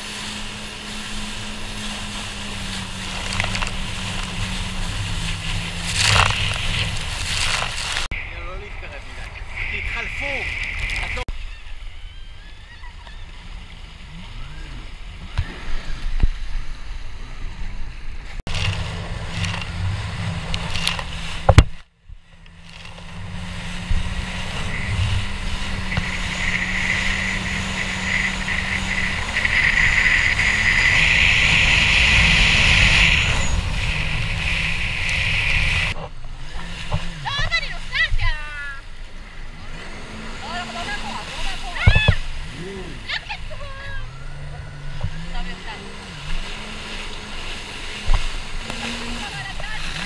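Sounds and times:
wind over camera: 0.0s - 39.9s
jet ski engine drone: 0.0s - 50.0s
sea water wash: 0.0s - 50.0s
water spray hiss: 24.5s - 36.0s.

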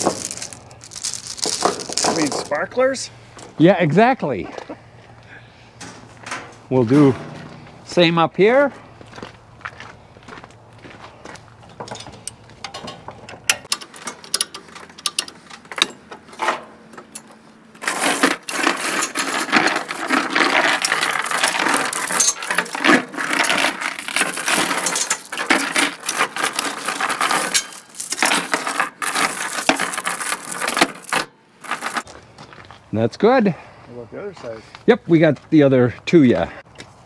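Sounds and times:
steel chain links clattering: 0.0s - 2.7s, 11.8s - 16.0s, 17.2s - 32.0s.

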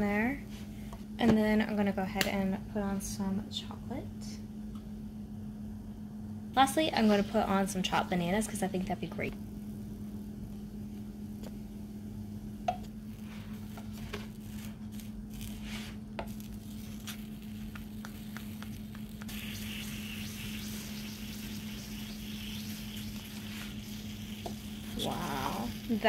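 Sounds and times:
steady low hum: 0.0s - 26.0s
crepe sizzling: 12.9s - 26.0s.

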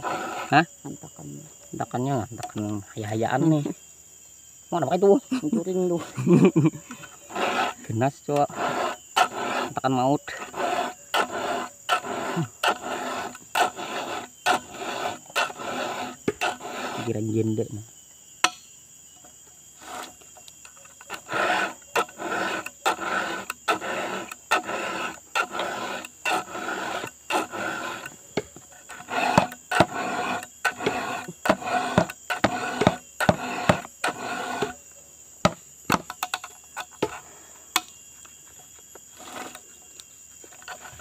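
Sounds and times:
file rasping on chainsaw chain: 0.0s - 0.7s, 7.2s - 17.6s, 19.8s - 34.8s, 39.2s - 39.6s.

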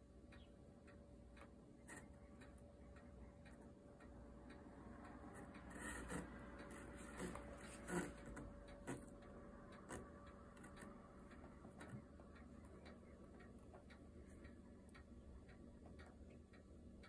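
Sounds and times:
kitten scratching in cardboard box: 5.7s - 9.1s.

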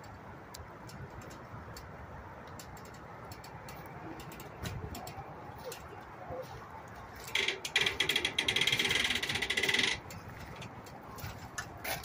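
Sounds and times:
metallic ratcheting clicks: 7.2s - 11.0s.

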